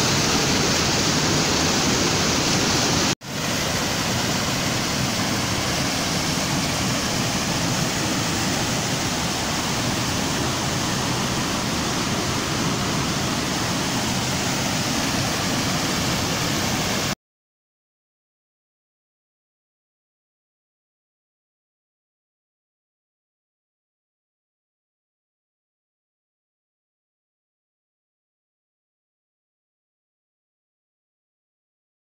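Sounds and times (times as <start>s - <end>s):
mountain stream rushing: 0.0s - 17.2s.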